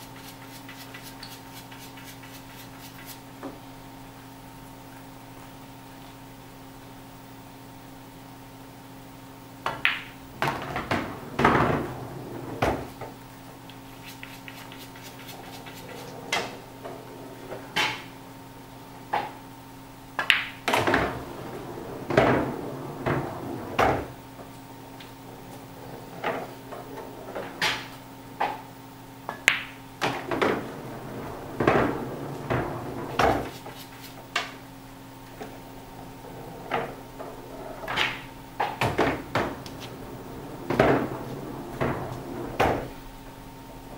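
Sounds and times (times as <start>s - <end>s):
steady low hum: 0.0s - 43.9s
pool balls clacking: 9.6s - 18.2s, 19.0s - 19.4s, 20.2s - 34.6s, 35.2s - 43.9s
cue striking ball: 9.7s - 12.9s, 15.7s - 18.2s, 26.0s - 28.7s, 29.3s - 33.5s, 36.7s - 43.0s.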